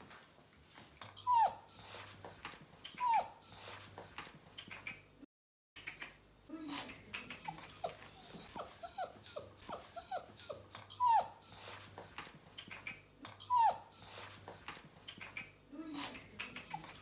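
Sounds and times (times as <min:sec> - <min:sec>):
puppy whimpering: 0:01.0 - 0:02.1, 0:02.9 - 0:03.8, 0:06.6 - 0:11.9, 0:13.3 - 0:14.4, 0:15.8 - 0:17.0.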